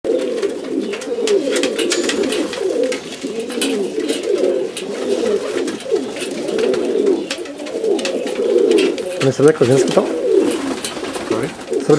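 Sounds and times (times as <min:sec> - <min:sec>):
pigeons cooing: 0:00.1 - 0:11.9.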